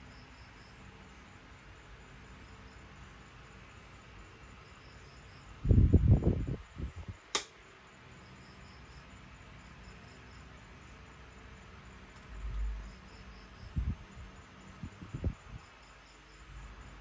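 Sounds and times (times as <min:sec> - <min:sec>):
switch click: 0:07.3 - 0:07.5.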